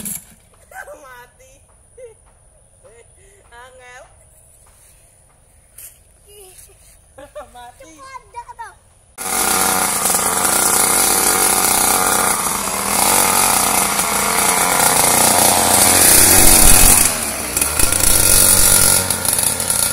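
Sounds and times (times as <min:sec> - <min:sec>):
dirt bike engine running: 0:09.2 - 0:19.9.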